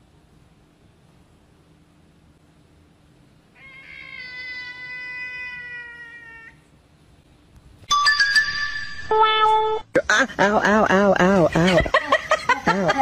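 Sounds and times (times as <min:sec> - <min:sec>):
cat meowing: 0:03.6 - 0:06.6.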